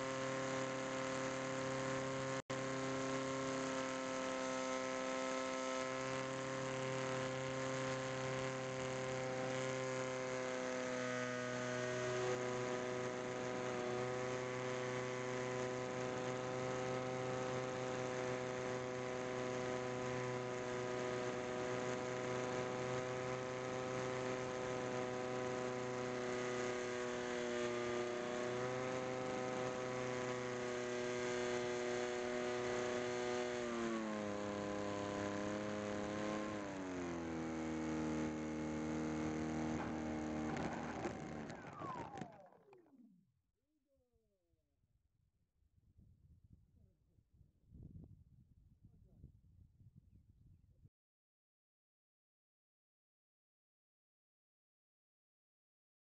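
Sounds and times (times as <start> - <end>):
electric motor propeller whine: 0.0 - 43.1
wind noise on microphone: 45.8 - 50.9.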